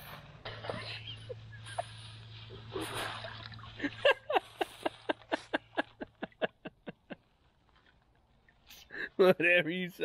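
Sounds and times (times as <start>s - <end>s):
water sloshing: 0.8s - 6.6s.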